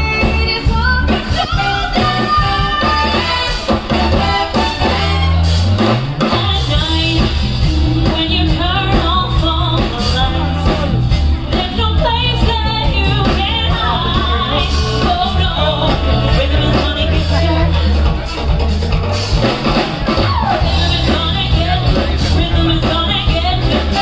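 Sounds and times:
woman singing: 0:00.0 - 0:03.5, 0:06.2 - 0:17.9, 0:20.5 - 0:24.0
heavy bass beat: 0:00.0 - 0:24.0
loud live stage music: 0:00.0 - 0:24.0.

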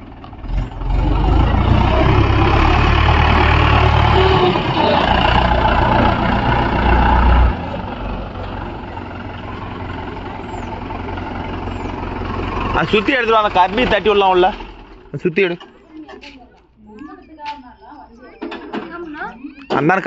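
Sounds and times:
tractor diesel engine revving: 0:00.0 - 0:15.8.

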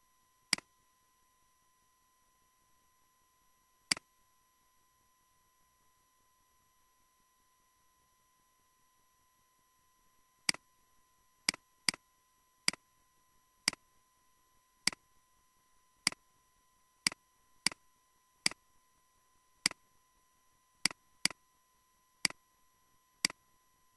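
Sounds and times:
faint steady high tone: 0:00.0 - 0:23.9.

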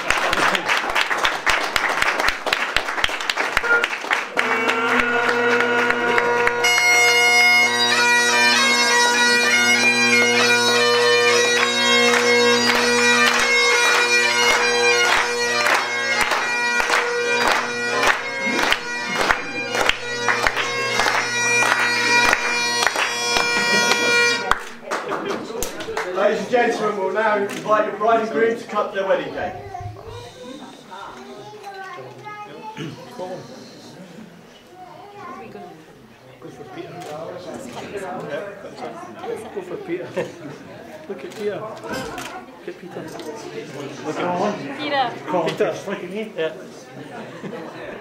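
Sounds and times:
guests applauding: 0:00.0 - 0:08.8, 0:09.4 - 0:26.3
bagpipe drones: 0:03.2 - 0:24.7
bagpipe chanter playing a tune: 0:03.5 - 0:24.6.

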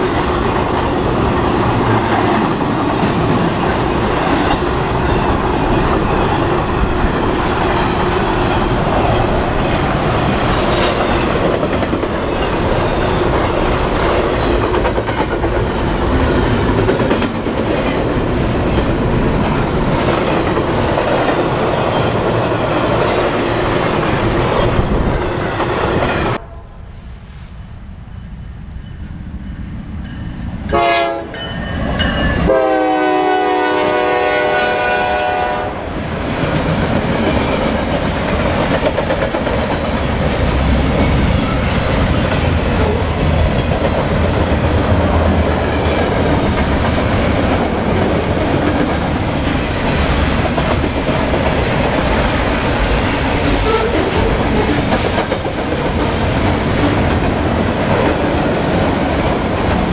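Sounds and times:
freight train rumbling and clattering: 0:00.0 - 0:26.5, 0:29.0 - 0:59.9
locomotive air horn: 0:30.7 - 0:31.4, 0:32.4 - 0:35.9, 0:53.6 - 0:54.2.

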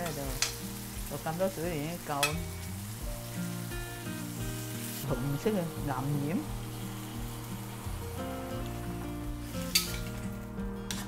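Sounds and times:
vegetables sizzling in a wok: 0:00.0 - 0:11.0.

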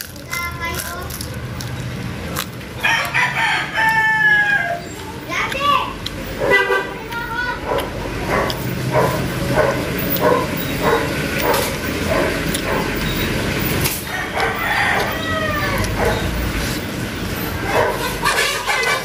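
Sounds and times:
chickens clucking: 0:02.7 - 0:19.0
rooster crowing: 0:02.8 - 0:04.9, 0:14.1 - 0:16.2.

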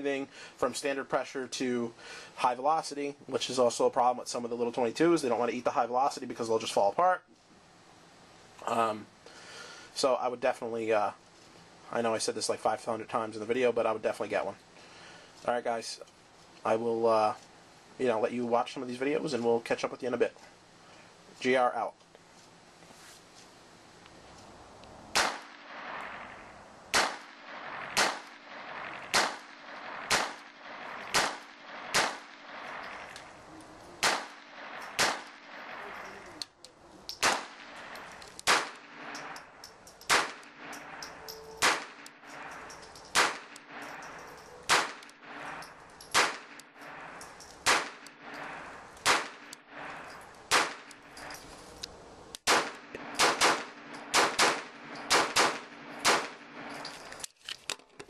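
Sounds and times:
pistol shots: 0:25.1 - 0:33.1, 0:34.0 - 0:36.1, 0:37.1 - 0:51.2, 0:52.4 - 0:56.9.

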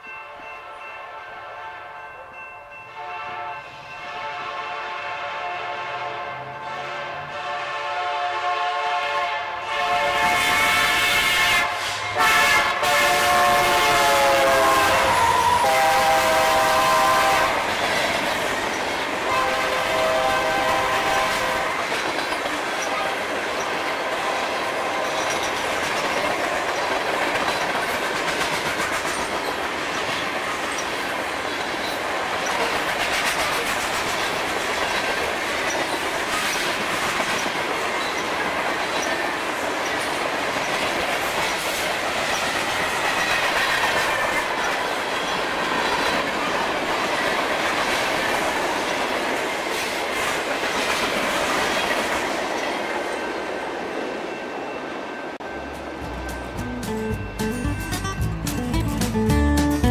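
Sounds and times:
locomotive horn blowing: 0:01.0 - 0:02.1, 0:03.0 - 0:17.7, 0:19.2 - 0:21.9, 0:22.8 - 0:23.3, 0:23.9 - 0:25.3
train wheels clacking over rail joints: 0:13.1 - 0:53.1.

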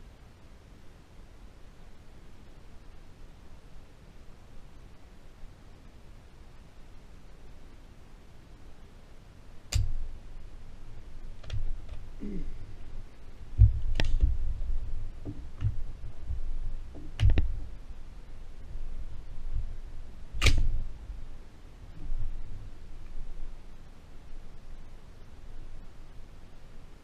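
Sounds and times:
low rumble: 0:09.8 - 0:24.9
rifle clicks and knocks: 0:11.4 - 0:12.1, 0:13.6 - 0:14.4, 0:15.2 - 0:17.6, 0:20.4 - 0:20.8.

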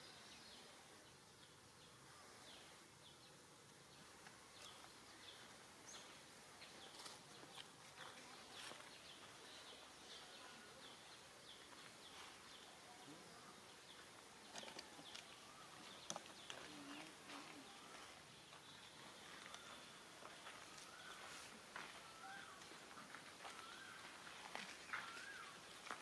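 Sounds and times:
high chirps of birds or insects: 0:00.0 - 0:26.0
light clicks and rustles: 0:14.4 - 0:17.5.

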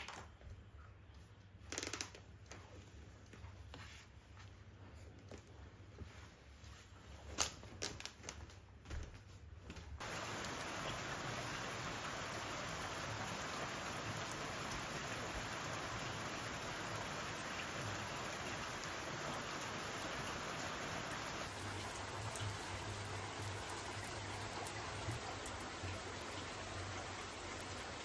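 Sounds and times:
rain on a tiled roof: 0:10.0 - 0:28.0.

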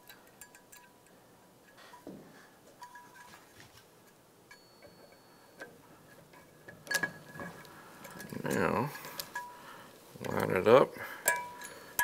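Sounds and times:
light metallic clicks and ticks: 0:00.0 - 0:02.0, 0:11.2 - 0:12.0.

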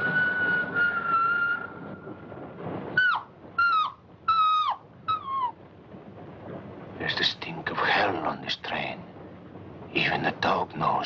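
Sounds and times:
dog whining: 0:03.0 - 0:05.6.

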